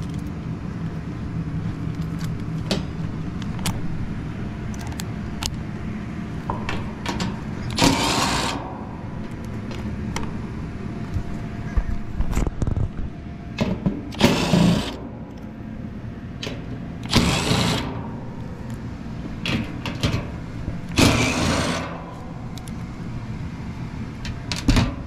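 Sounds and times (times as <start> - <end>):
impact driver backing out screws: 7.7 - 8.6, 14.1 - 15.0, 17.0 - 18.0.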